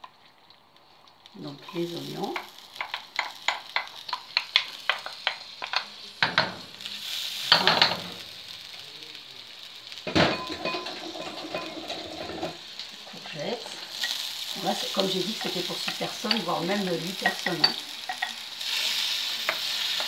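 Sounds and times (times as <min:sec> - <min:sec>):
onions sizzling in a wok: 0:00.0 - 0:20.0
spatula tapping a pan: 0:02.4 - 0:06.6, 0:15.4 - 0:16.5, 0:19.4 - 0:20.0
spatula scraping a pan: 0:10.3 - 0:12.6.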